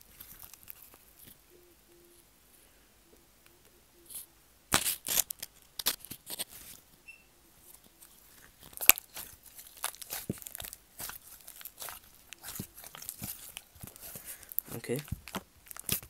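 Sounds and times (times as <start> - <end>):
slime squeezed with wet pops: 8.7 - 16.0.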